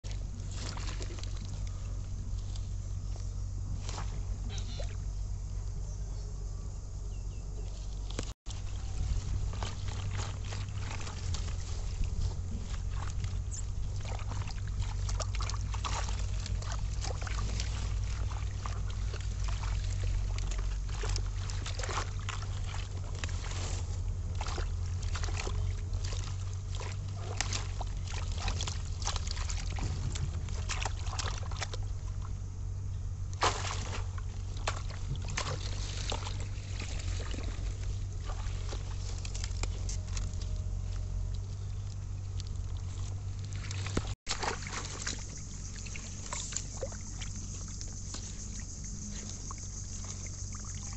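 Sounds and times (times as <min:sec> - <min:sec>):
hands splashing in water: 0:00.0 - 0:01.7, 0:09.4 - 0:12.0, 0:12.7 - 0:31.8, 0:33.4 - 0:40.2, 0:43.4 - 0:48.6
steady low rumble: 0:00.0 - 0:50.9.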